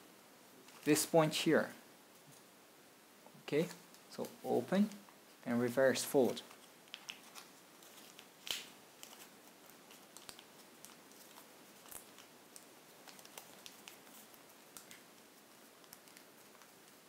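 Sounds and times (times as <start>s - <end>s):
paper crackle: 6.4s - 17.0s
paper crinkling and ticking: 6.4s - 17.0s.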